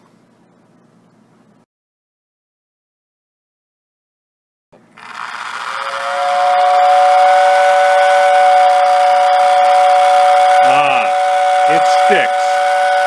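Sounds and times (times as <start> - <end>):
toy train whistle chord: 5.0 - 13.0.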